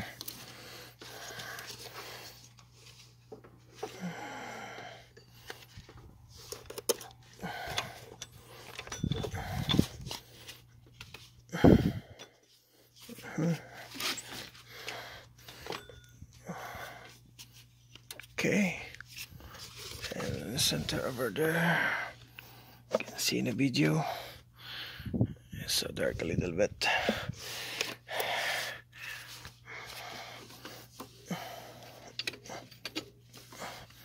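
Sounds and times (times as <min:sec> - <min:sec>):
heavy breathing: 0:00.0 - 0:02.6, 0:03.8 - 0:06.0, 0:07.2 - 0:10.6, 0:11.5 - 0:17.2, 0:18.6 - 0:23.1, 0:23.9 - 0:25.6, 0:26.7 - 0:34.0
faint steady hum: 0:00.0 - 0:34.0
hands handling engine parts: 0:05.1 - 0:11.5, 0:32.1 - 0:34.0.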